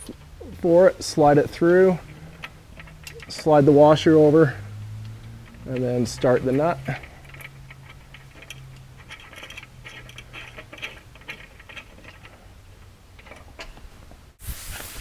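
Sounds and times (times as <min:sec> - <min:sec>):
nut scratching on bolt: 0:01.1 - 0:13.9
small metallic clicks: 0:02.0 - 0:13.9.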